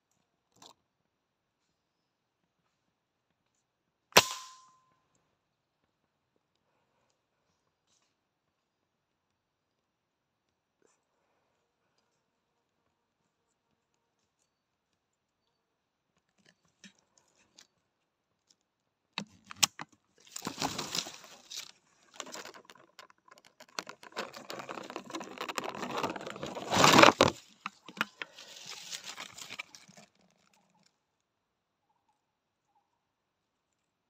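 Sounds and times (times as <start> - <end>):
dry leaves rustling and crunching: 20.3 - 21.7, 28.2 - 29.9.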